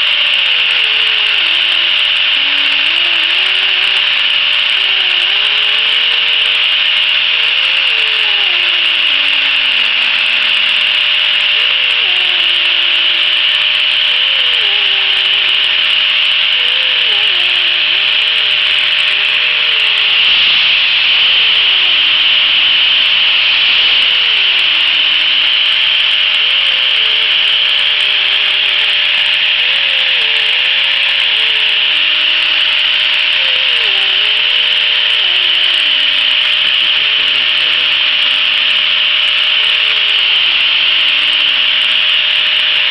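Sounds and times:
angle grinder grinding wood: 0.0s - 42.9s.

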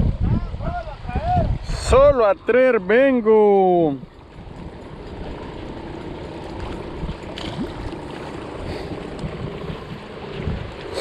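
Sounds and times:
small waves lapping on rocks: 3.9s - 11.0s.

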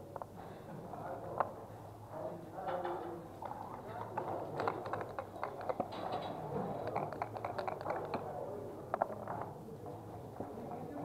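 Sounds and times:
checkers and dice clicking on wood: 4.0s - 9.5s.

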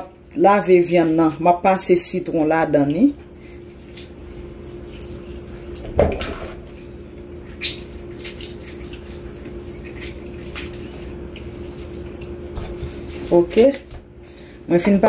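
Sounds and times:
steady low hum: 0.0s - 15.0s
squishy clicks of wet chicken: 3.8s - 4.2s, 7.5s - 14.0s.

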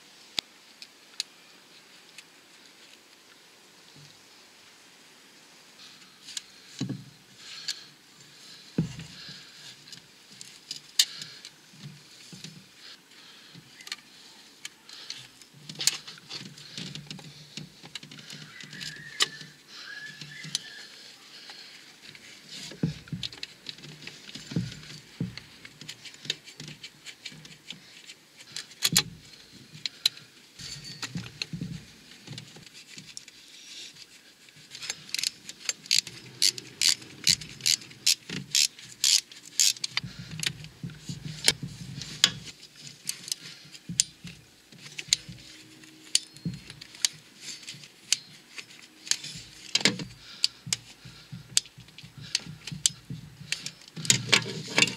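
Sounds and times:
metal scraping on metal: 30.6s - 31.2s, 54.2s - 54.9s.

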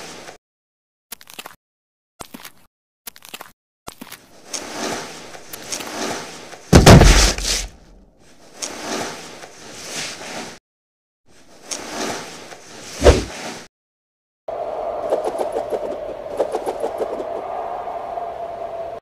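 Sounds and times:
heavy impact with deep boom: 6.8s - 7.4s.

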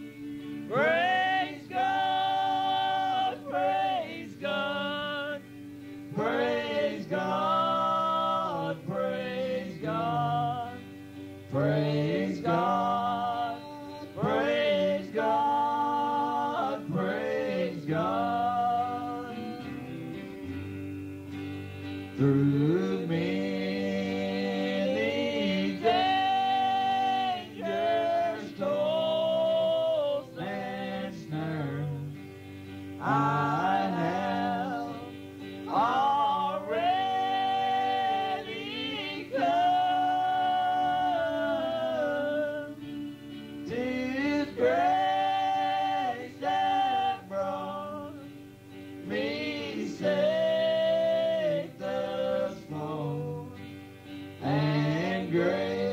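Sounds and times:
group singing gospel song: 0.0s - 20.9s, 21.8s - 32.3s, 32.9s - 55.9s
musical accompaniment: 18.1s - 52.0s.

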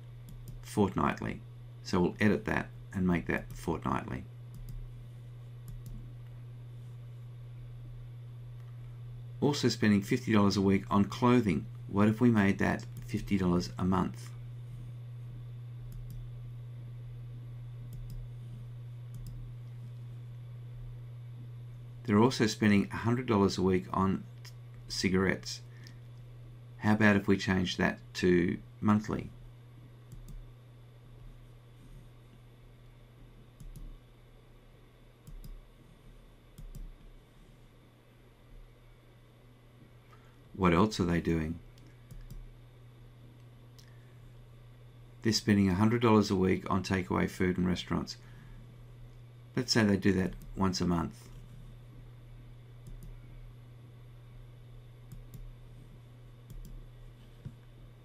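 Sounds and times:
low steady hum: 0.0s - 58.0s
computer mouse clicking: 0.2s - 0.6s, 4.5s - 4.8s, 5.6s - 6.0s, 15.9s - 16.2s, 17.9s - 18.2s, 19.1s - 19.4s, 30.1s - 30.4s, 33.6s - 33.9s, 35.2s - 35.6s, 36.6s - 37.0s, 41.8s - 42.4s, 52.8s - 53.1s, 55.1s - 55.5s, 56.5s - 56.8s.

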